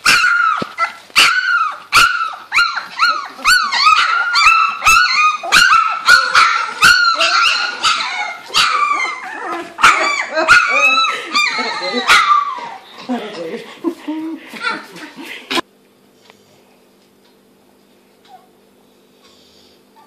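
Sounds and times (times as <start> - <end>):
puppies yelping and squealing: 0.0 - 13.0.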